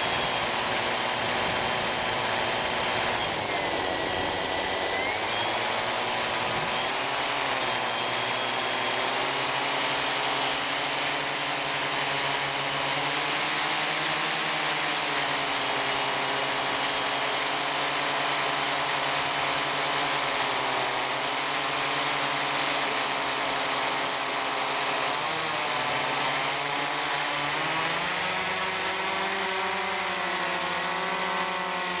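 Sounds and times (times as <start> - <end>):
propeller motors running: 0.0 - 32.0.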